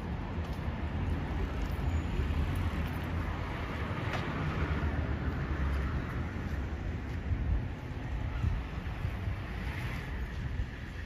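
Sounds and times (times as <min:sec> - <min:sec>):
low rumble of traffic: 0:00.0 - 0:11.0
wind on microphone: 0:06.2 - 0:11.0.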